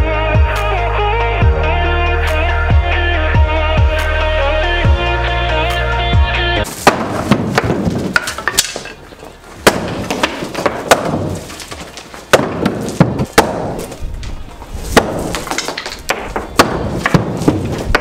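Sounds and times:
hammer whacking wood: 0:06.7 - 0:08.9, 0:09.6 - 0:14.0, 0:14.9 - 0:18.0
loose wood rattling: 0:06.7 - 0:18.0.

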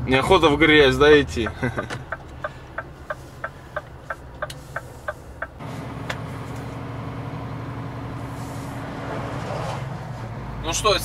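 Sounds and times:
diesel engine: 0:00.0 - 0:11.0
turn signal ticking: 0:00.8 - 0:06.2.

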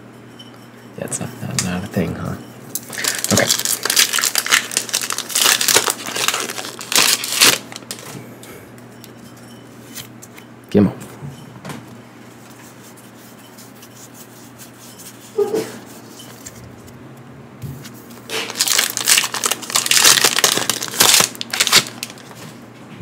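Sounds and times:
foil wrapper crinkling and tearing: 0:02.8 - 0:08.1, 0:18.3 - 0:22.5.

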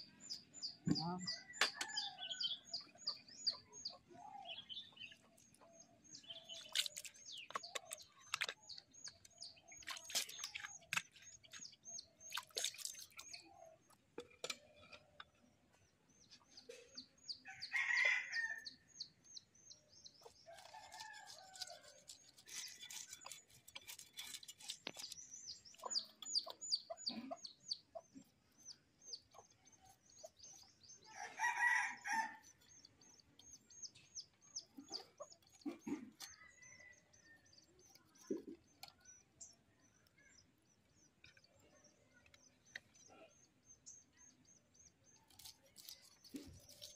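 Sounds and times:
small birds chirping: 0:00.0 - 0:46.9
knife scraping fish scales: 0:20.6 - 0:26.3, 0:45.2 - 0:46.9.

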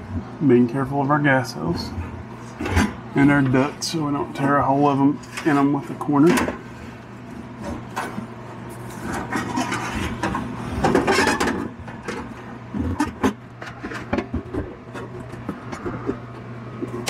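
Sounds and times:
sheet metal scraping wood: 0:09.0 - 0:12.2.

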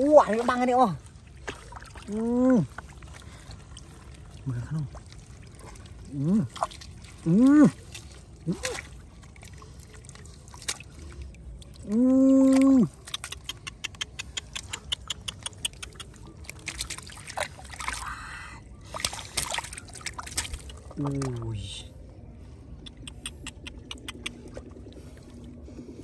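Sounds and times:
water sloshing and splashing: 0:00.0 - 0:26.0
small wet slaps: 0:06.4 - 0:18.0, 0:18.8 - 0:21.4.

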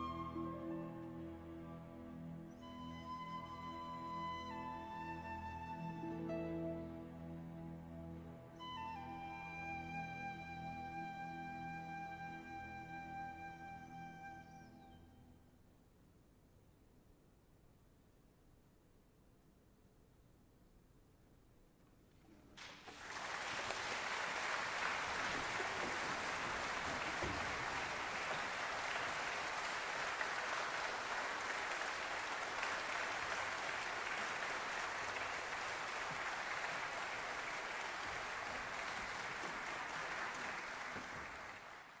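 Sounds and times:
audience applause: 0:22.6 - 0:42.0.

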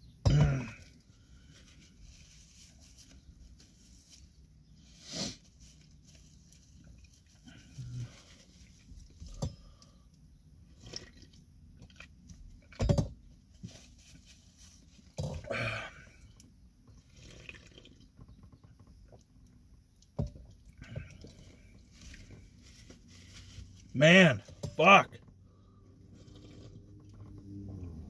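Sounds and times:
man sniffling: 0:15.4 - 0:16.1.

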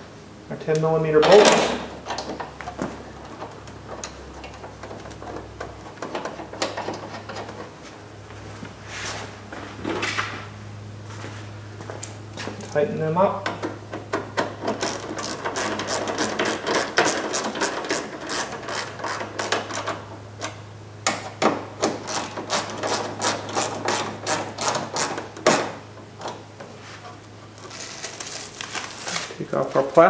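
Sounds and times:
hand ratchet clicking: 0:14.4 - 0:20.0, 0:21.8 - 0:25.2.

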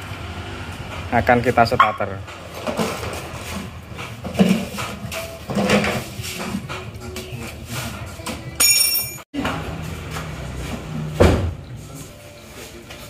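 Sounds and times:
knocks and metallic clinks: 0:08.6 - 0:09.2.

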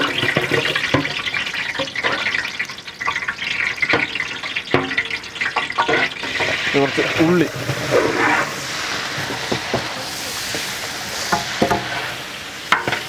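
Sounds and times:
chillies sizzling in oil: 0:00.0 - 0:13.0
metal ladle scraping a pot: 0:05.5 - 0:13.0.

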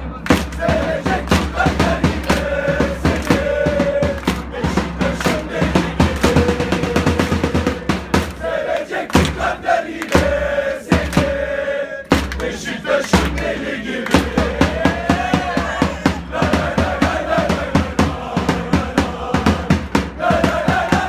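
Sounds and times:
crowd singing a chant: 0:00.0 - 0:21.0
hand claps: 0:00.2 - 0:01.5, 0:02.1 - 0:03.4, 0:04.0 - 0:04.5, 0:05.1 - 0:06.5, 0:08.2 - 0:11.3, 0:12.1 - 0:14.4
drum beat: 0:00.3 - 0:21.0.

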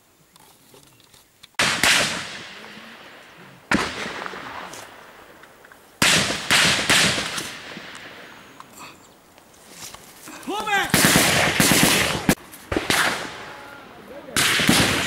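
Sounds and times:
gunshots with long echo: 0:01.6 - 0:08.6, 0:10.8 - 0:15.0.

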